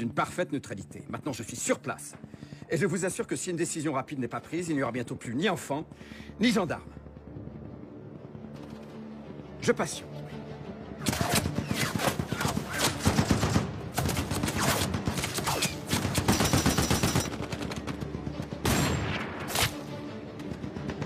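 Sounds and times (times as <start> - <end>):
rapid rifle gunfire: 11.1 - 19.0.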